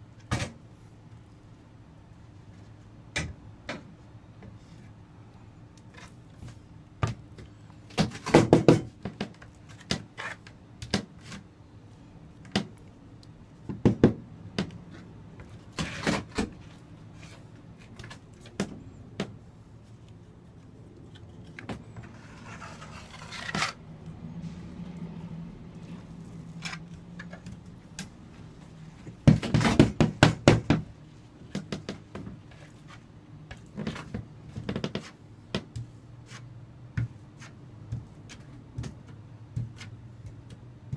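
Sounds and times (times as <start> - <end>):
steel trowel scraping and knocking: 22.0 - 23.8.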